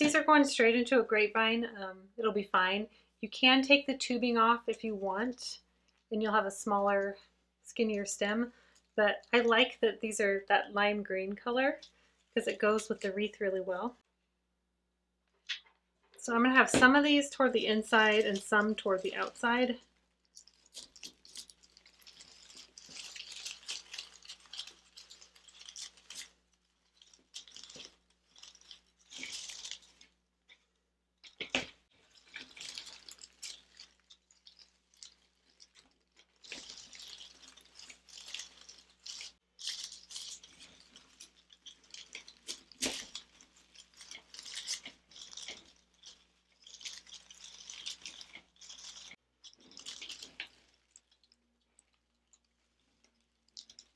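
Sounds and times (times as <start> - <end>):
plastic leaves rustling: 16.2 - 30.2, 31.2 - 53.9.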